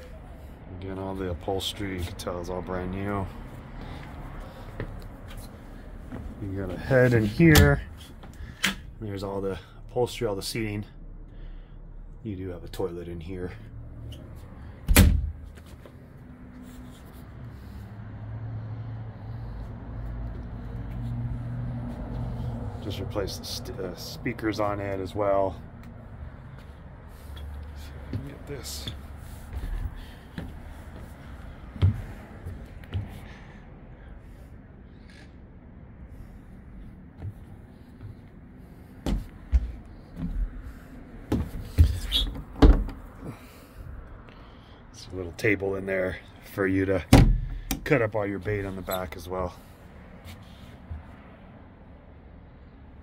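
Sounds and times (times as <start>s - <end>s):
door thumping shut: 14.9s - 15.4s, 39.0s - 39.7s, 41.3s - 43.0s, 47.1s - 47.8s.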